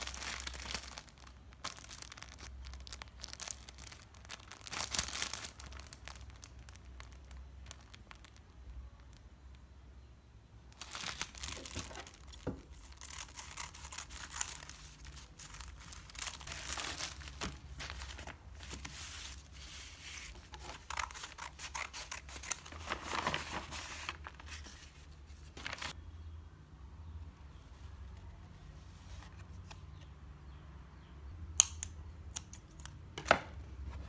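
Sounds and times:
paper crinkling and rustling: 0:00.0 - 0:09.2, 0:10.8 - 0:26.0.

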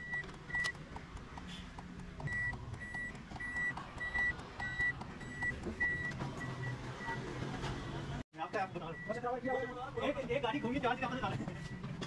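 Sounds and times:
car warning buzzer beeping: 0:02.3 - 0:07.3.

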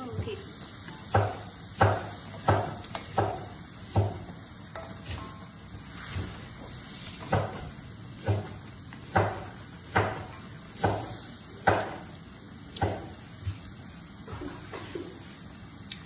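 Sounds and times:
chopsticks stirring chicken in wok: 0:00.9 - 0:11.9
dull knocks against wok: 0:01.1 - 0:05.2, 0:07.2 - 0:12.1.

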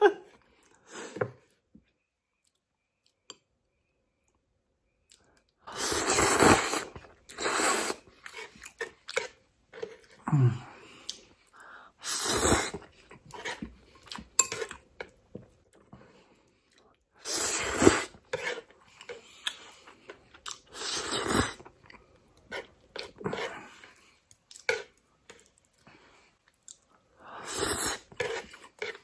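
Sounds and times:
noodles slurped: 0:05.7 - 0:11.3, 0:12.0 - 0:13.7, 0:17.2 - 0:25.6, 0:26.6 - 0:29.0.

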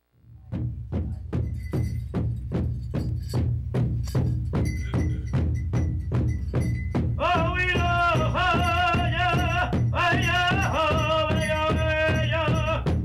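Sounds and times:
large drum beating: 0:00.3 - 0:13.0.

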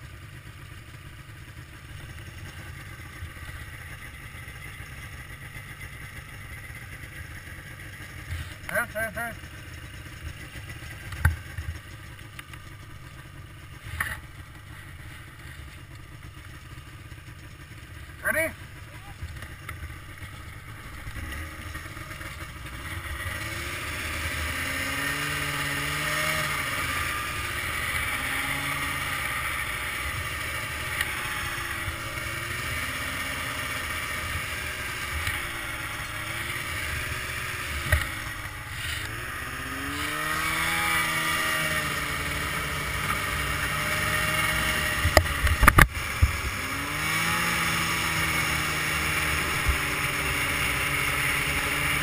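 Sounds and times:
snowmobile engine revving: 0:05.8 - 0:12.3, 0:17.7 - 0:52.0.

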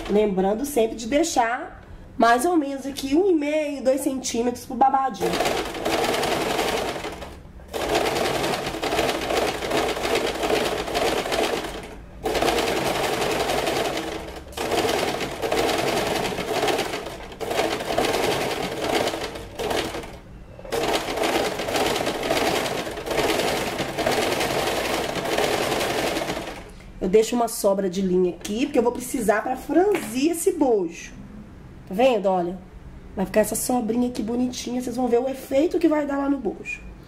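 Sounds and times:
sewing machine running: 0:05.2 - 0:26.8.

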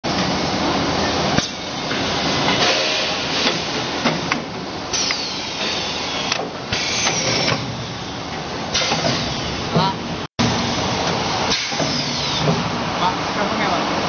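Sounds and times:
machine rushing hiss: 0:04.9 - 0:07.6.

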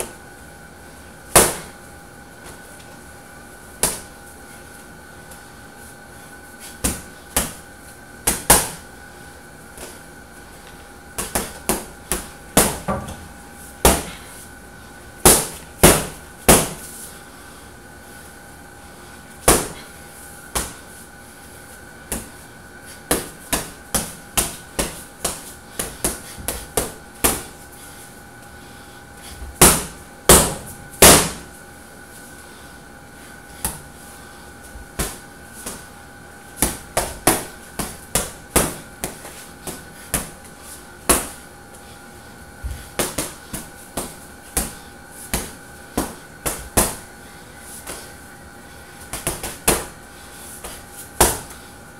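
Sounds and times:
punches hitting heavy bag: 0:01.3 - 0:01.7, 0:11.2 - 0:13.2, 0:13.8 - 0:14.2, 0:15.2 - 0:16.8, 0:19.4 - 0:19.8, 0:29.6 - 0:31.5, 0:36.6 - 0:40.3, 0:51.2 - 0:51.5.

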